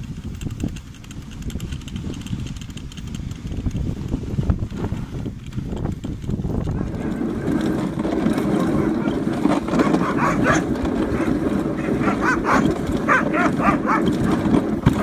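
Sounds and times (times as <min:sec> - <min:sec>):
sled rumbling on snow: 0:00.0 - 0:15.0
huskies barking and yipping: 0:06.6 - 0:15.0.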